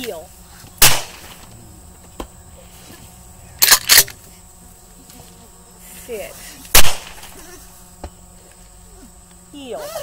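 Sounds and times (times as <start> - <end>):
gunshots: 0.8 - 1.4, 6.7 - 7.3.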